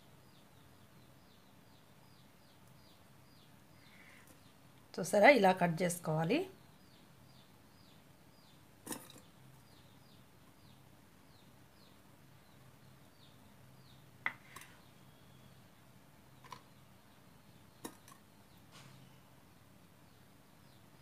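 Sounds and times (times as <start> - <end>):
faint high chirping: 6.3 - 21.0.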